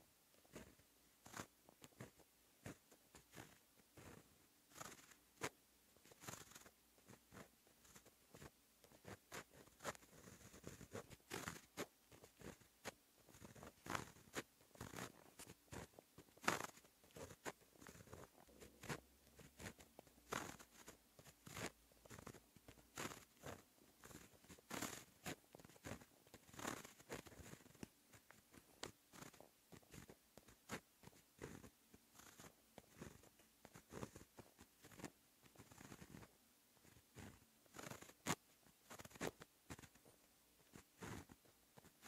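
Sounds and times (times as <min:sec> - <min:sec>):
pen writing on paper: 0:06.1 - 0:36.3.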